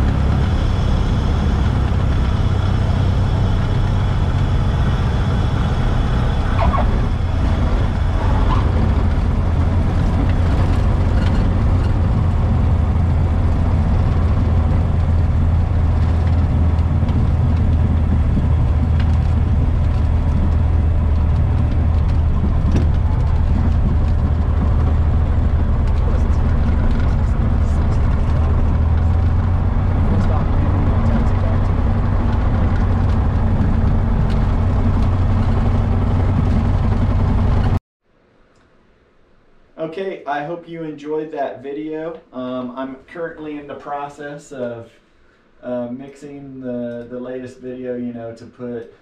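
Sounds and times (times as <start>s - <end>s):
aircraft engine drone: 0.0s - 37.8s
faint short squeaks: 6.6s - 7.1s.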